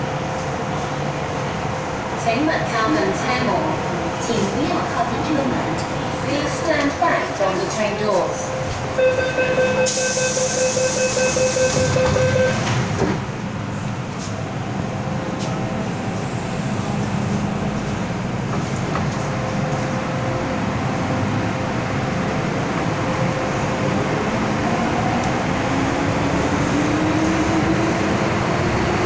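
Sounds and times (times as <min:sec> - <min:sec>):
train motors and wheels rumbling: 0:00.0 - 0:29.0
train doors shutting: 0:05.5 - 0:14.5
door closing warning tone: 0:09.0 - 0:12.9.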